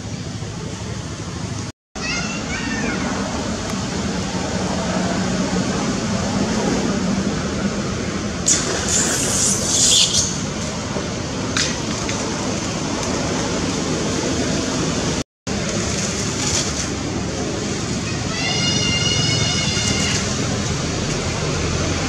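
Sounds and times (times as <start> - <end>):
flowing water: 7.4 - 22.0
monkey squealing: 8.8 - 10.4
water splashing: 15.5 - 22.0.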